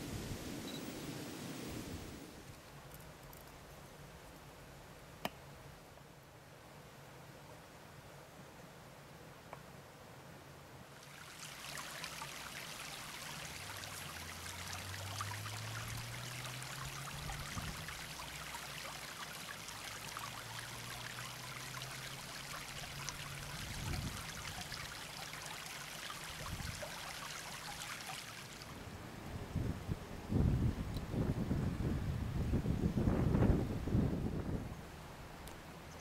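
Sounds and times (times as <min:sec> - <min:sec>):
stream water rushing: 0:11.0 - 0:29.2.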